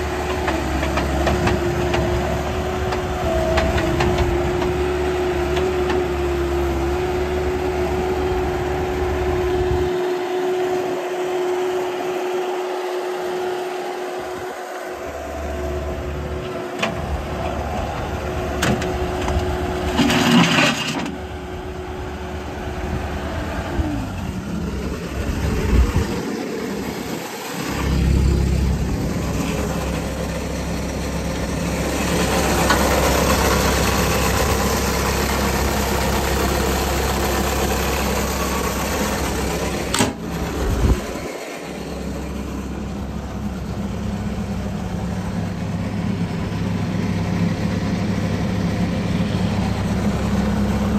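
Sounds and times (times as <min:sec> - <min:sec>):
diesel engine running: 0:00.0 - 0:50.9.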